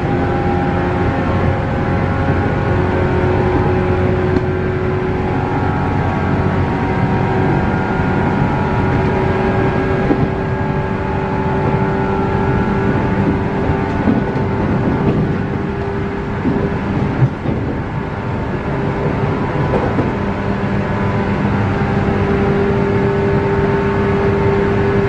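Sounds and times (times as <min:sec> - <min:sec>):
electric train motor whine: 0:00.0 - 0:25.0
wheels rumbling on track: 0:00.0 - 0:25.0.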